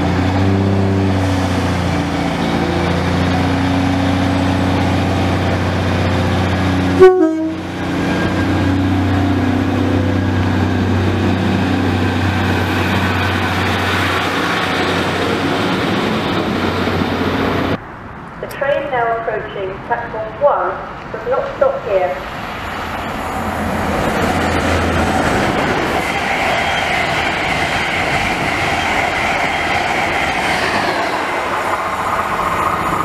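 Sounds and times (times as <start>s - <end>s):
diesel train engine running: 0.0s - 17.8s, 22.2s - 33.0s
train wheel noise: 0.0s - 17.8s, 22.2s - 33.0s
train horn toot: 7.0s - 7.7s.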